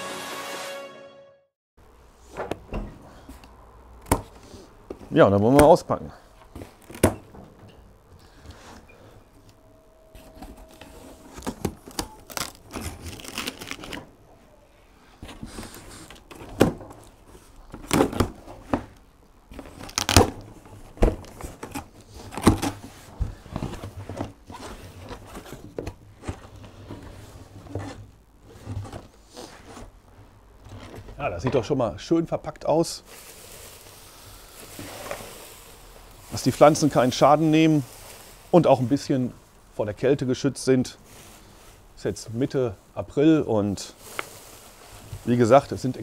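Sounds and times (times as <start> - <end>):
packing tape cut and torn: 11.4 - 14.0, 19.6 - 20.4.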